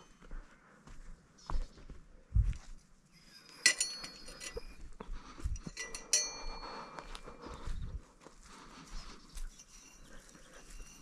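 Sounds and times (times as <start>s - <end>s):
metal fishing tackle clinking: 3.2s - 5.0s, 5.6s - 7.1s.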